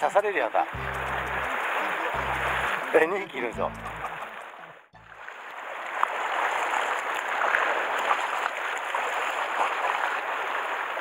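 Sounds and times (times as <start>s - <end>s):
sea waves splashing on rocks: 5.3s - 11.0s.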